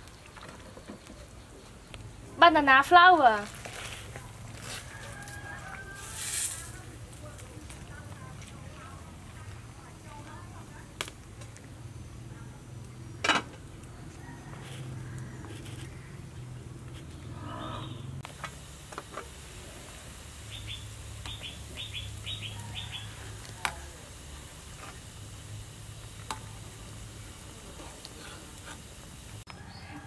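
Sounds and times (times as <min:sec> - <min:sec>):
soup boiling in a pot: 0:00.0 - 0:30.0
small bird chirping: 0:20.5 - 0:23.1.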